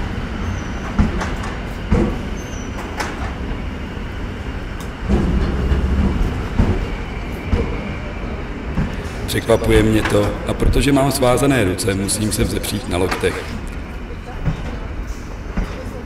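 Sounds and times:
low rumble of a train: 0:00.0 - 0:16.0
scattered knocks and clicks: 0:04.8 - 0:07.9.

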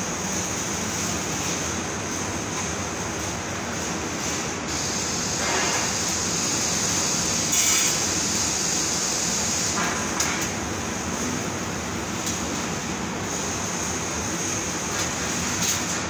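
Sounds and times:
loud hiss: 0:03.8 - 0:11.7.

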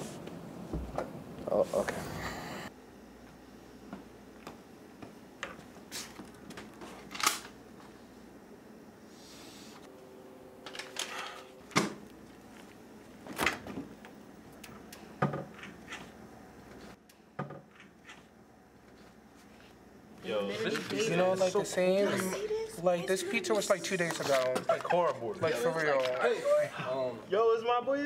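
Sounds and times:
steady hum: 0:00.0 - 0:28.0
knocks and clicks in kitchen: 0:14.6 - 0:16.1, 0:17.0 - 0:18.2.

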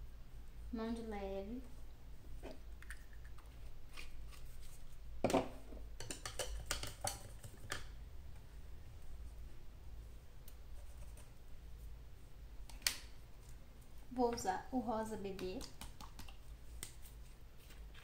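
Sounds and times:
painting tools clicking and tapping: 0:06.0 - 0:07.9, 0:15.3 - 0:17.0.

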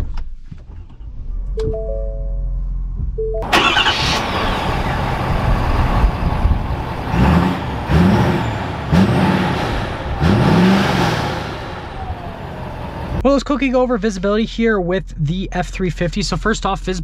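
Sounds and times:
diesel engine running and revving: 0:03.4 - 0:13.2.

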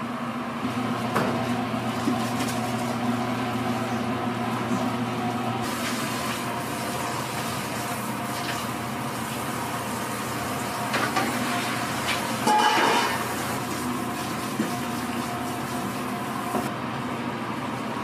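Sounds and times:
steady mechanical hum: 0:00.0 - 0:18.0
bowl and ladle clinking: 0:12.4 - 0:13.2.

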